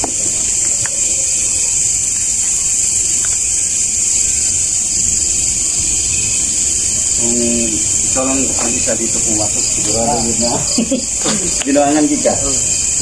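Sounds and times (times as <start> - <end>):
faint ticks: 0.0 - 5.0
high-pitched hiss: 0.0 - 13.0.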